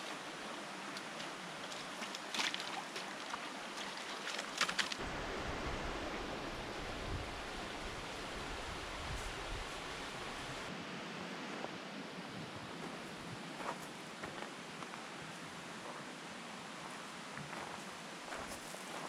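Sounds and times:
water splashes: 0.0 - 10.7
river rushing over stones: 0.0 - 10.8.

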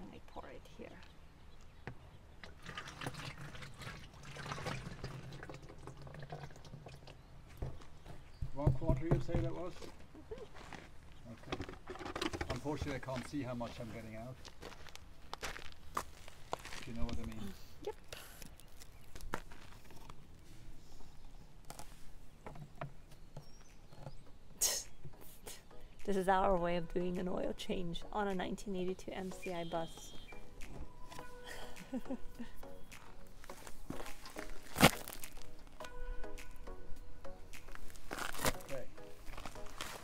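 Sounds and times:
oil pouring into plastic can: 2.4 - 7.3.

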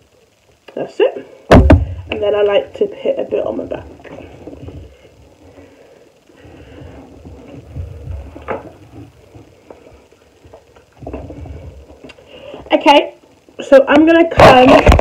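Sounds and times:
low thuds: 1.5 - 2.3.

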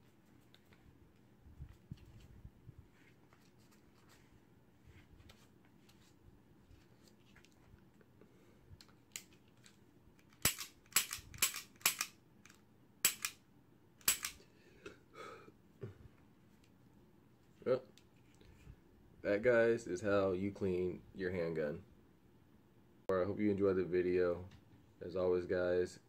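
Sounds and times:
pistol metallic clicks: 10.2 - 13.4, 14.0 - 14.4.

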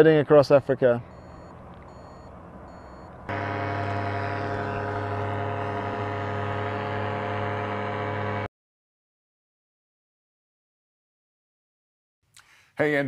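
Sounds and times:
steady mechanical drone: 1.1 - 8.5.

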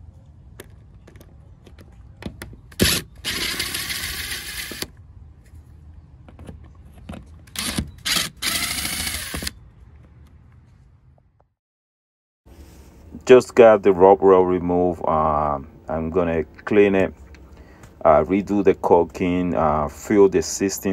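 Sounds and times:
power drill backing out screws: 2.8 - 4.9, 7.5 - 9.5
drill trigger blips and clicks: 7.5 - 9.5.

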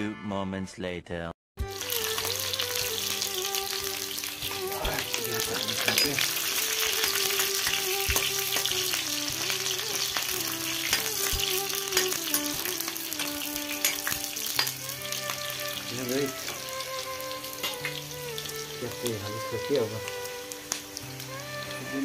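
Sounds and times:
held musical tones: 1.6 - 22.0
onions sizzling in hot oil: 1.6 - 22.0
metal spoon scraping a pan: 4.2 - 15.0, 17.5 - 18.0.

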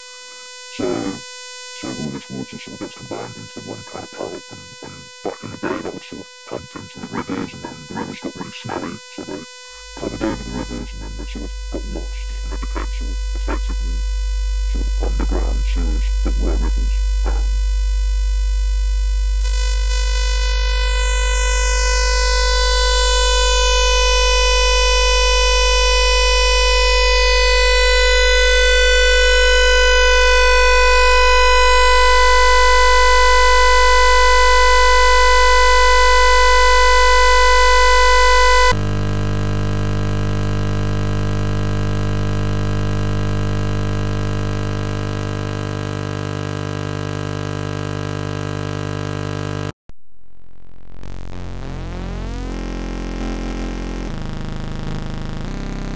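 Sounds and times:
buzzing synthesized chord: 8.6 - 49.7, 51.1 - 55.9.

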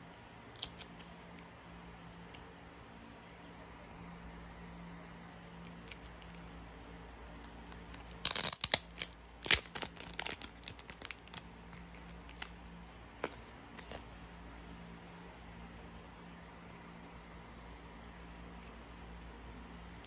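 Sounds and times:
plastic sleeve crinkling and tearing: 0.5 - 1.0, 5.7 - 6.5, 7.3 - 14.0.

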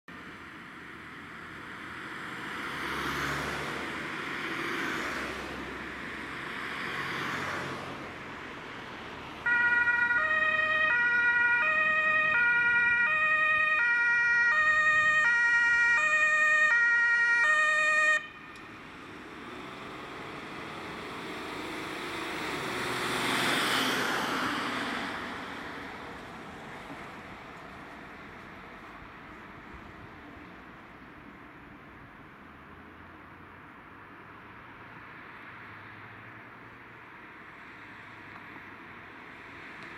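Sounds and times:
passing road traffic: 0.1 - 39.9
two-tone ambulance siren: 9.4 - 18.6.

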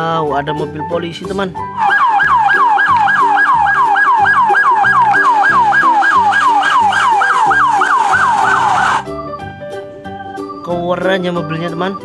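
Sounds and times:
faint background tune: 0.0 - 12.0
police siren yelping: 1.8 - 9.2.

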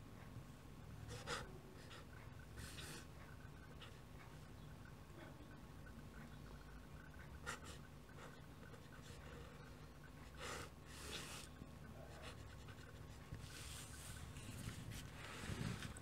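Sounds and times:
pen scratching on paper: 10.5 - 16.0.

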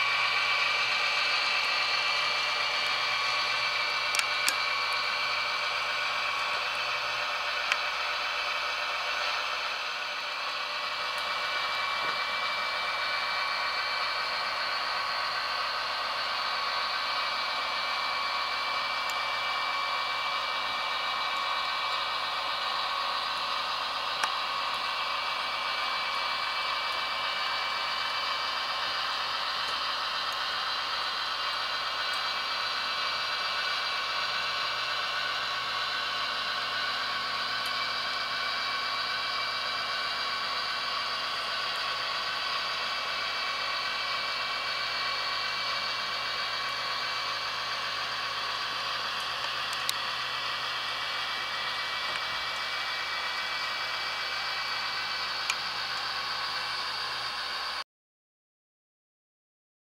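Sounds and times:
diesel engine through small speaker: 0.0 - 57.8.

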